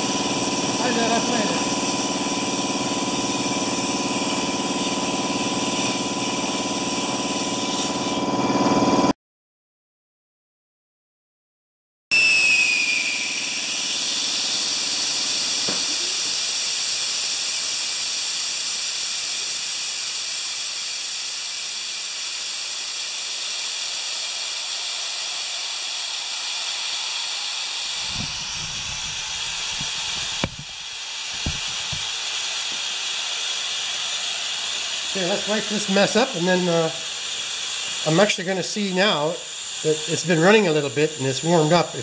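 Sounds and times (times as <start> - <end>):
compressed air hissing: 0.0 - 8.2, 12.2 - 42.0
falling whistle: 12.1 - 16.4.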